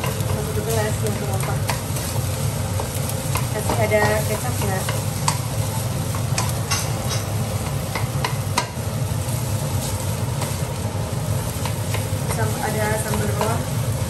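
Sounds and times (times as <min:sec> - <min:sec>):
wooden spatula scraping a wok: 0:00.0 - 0:08.5
food sizzling: 0:00.0 - 0:14.0.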